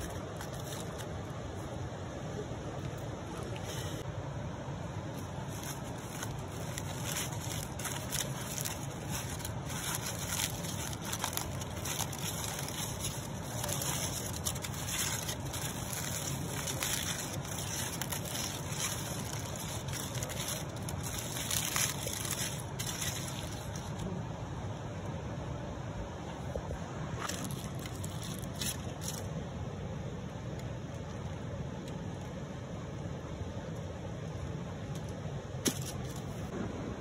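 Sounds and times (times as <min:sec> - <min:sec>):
aluminium foil crinkling: 0:00.0 - 0:01.4, 0:05.1 - 0:24.1, 0:27.2 - 0:29.4.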